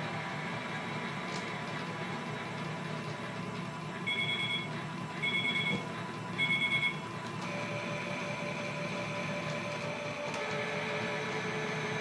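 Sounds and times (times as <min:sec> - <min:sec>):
toy washing machine beeping: 0:04.0 - 0:12.0
steady whine: 0:06.5 - 0:12.0.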